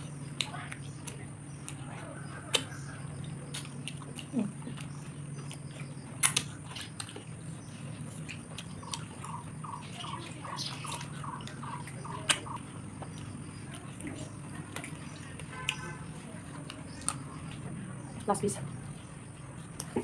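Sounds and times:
person chewing food: 0:00.0 - 0:18.2, 0:18.8 - 0:20.0
steady low hum: 0:00.0 - 0:20.0.

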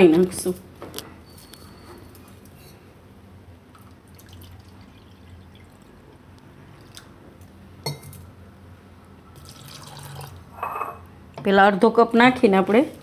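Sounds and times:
water trickling and dripping: 0:03.7 - 0:05.9.

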